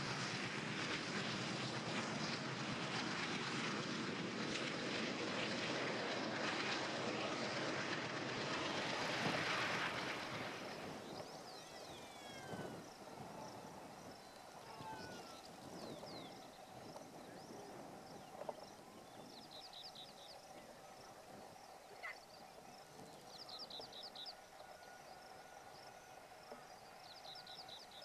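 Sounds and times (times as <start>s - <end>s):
train wheels on rails: 0.0s - 12.0s.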